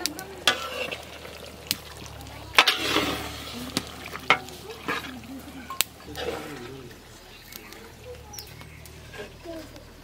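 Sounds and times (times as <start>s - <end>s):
curry sizzling: 0.0s - 10.0s
metal spatula scraping a pan: 0.4s - 1.4s, 2.5s - 6.8s.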